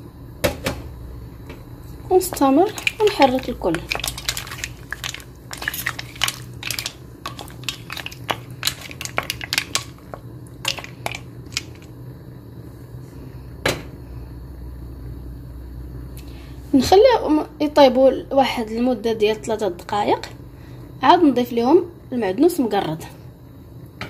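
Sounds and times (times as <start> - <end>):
low steady hum: 0.0 - 24.0
shells clacking in a pan: 2.3 - 11.9.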